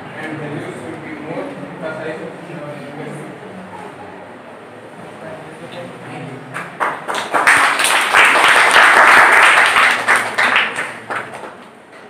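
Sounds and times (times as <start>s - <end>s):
audience applauding: 6.5s - 11.8s.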